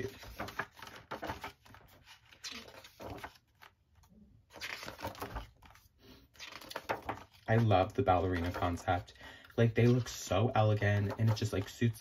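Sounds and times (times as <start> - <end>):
paper pages rustling: 0.0 - 12.0.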